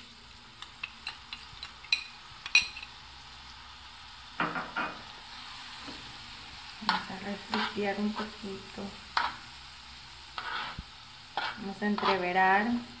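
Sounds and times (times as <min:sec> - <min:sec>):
garlic sizzling in a frying pan: 0:00.0 - 0:13.0
metal spoon clinking against pan: 0:00.6 - 0:02.9
spoon scraping pan: 0:06.7 - 0:09.6, 0:10.3 - 0:12.6.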